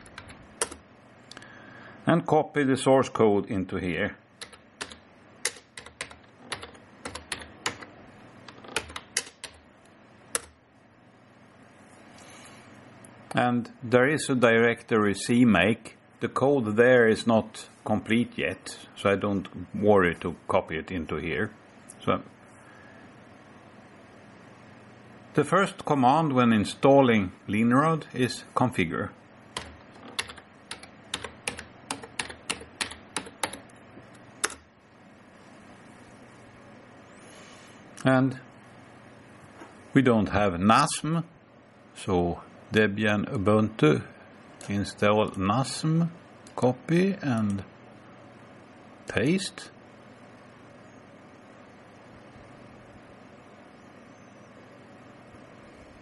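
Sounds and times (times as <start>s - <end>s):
typing on computer keyboard: 0.0s - 0.8s, 4.4s - 7.9s, 8.5s - 9.6s, 10.4s - 10.6s, 29.6s - 33.7s, 34.4s - 34.6s.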